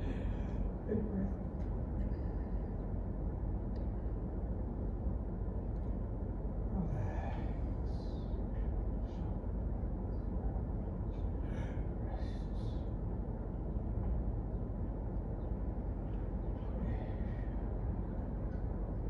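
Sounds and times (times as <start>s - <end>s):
soft breathing: 0.0s - 0.9s, 1.9s - 3.0s, 6.7s - 9.5s, 11.0s - 13.6s, 16.4s - 18.5s
low room rumble: 0.0s - 19.0s.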